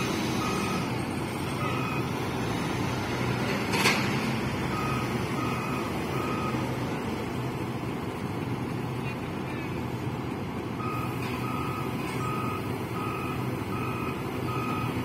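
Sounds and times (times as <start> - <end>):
reversing alarm beeping: 0.0 - 2.6, 4.6 - 6.8, 10.8 - 15.0
heavy diesel engine running: 0.0 - 15.0.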